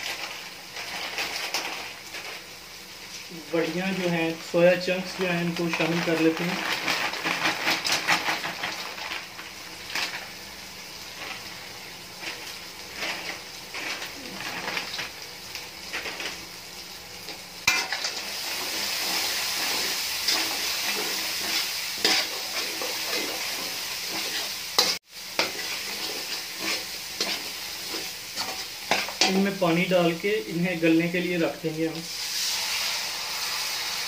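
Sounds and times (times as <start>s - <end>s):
food sizzling in a pan: 0.0s - 34.0s
metal turner scraping a pan: 12.2s - 15.1s, 17.6s - 29.9s.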